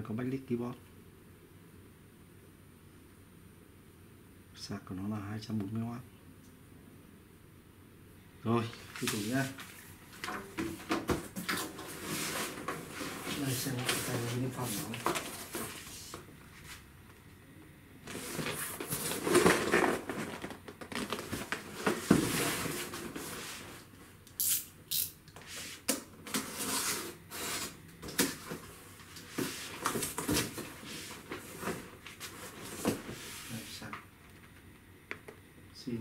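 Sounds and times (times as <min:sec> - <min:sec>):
cardboard box rustling: 0:18.1 - 0:23.7
knife slitting packing tape: 0:24.4 - 0:25.2.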